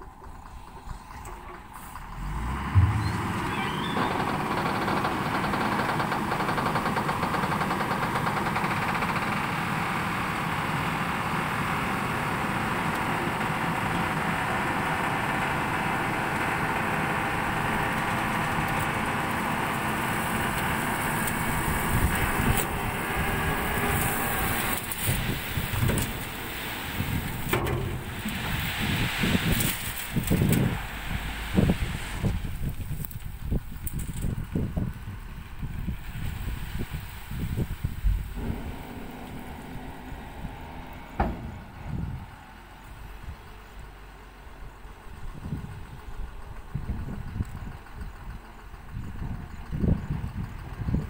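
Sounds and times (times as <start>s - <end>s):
truck engine at high revs: 0.2s - 51.0s
soil sliding out: 18.0s - 34.4s, 36.0s - 43.0s.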